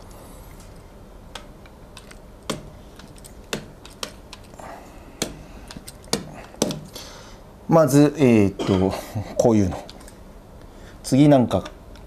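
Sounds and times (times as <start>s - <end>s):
marker tapping on whiteboard: 2.4s - 2.8s, 3.5s - 4.5s, 5.2s - 6.9s.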